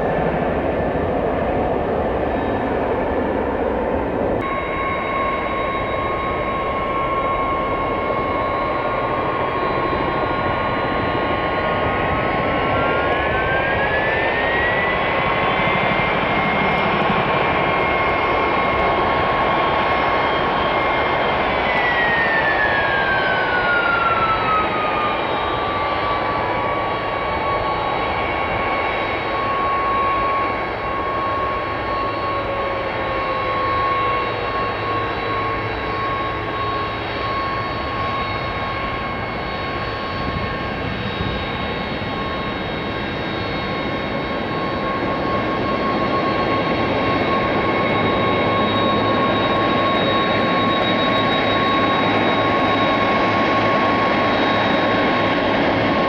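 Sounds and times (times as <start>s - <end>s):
jet engine whine: 0.0s - 56.0s
low tone sliding down: 4.4s - 11.0s.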